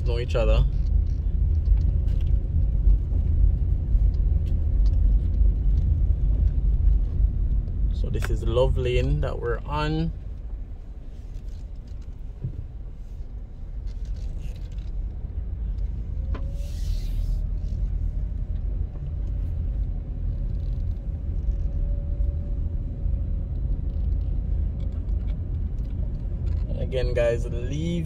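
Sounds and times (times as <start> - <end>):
engine and road rumble: 0.0 - 28.0
brief hiss: 16.6 - 17.4.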